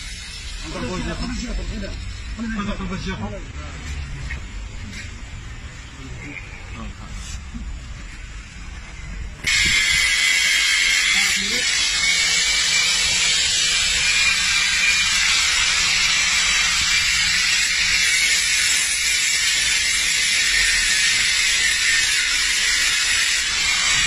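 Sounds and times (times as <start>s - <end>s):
angle grinder cutting metal: 0.0s - 3.0s, 9.4s - 24.0s.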